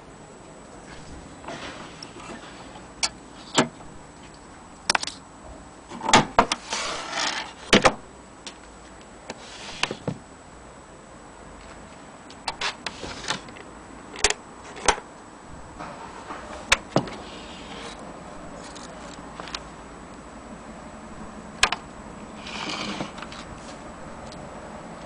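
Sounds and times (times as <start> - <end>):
scraping rustle: 0.8 - 3.6, 6.5 - 7.8, 8.8 - 10.1, 12.6 - 13.6, 15.8 - 19.6, 22.4 - 24.0.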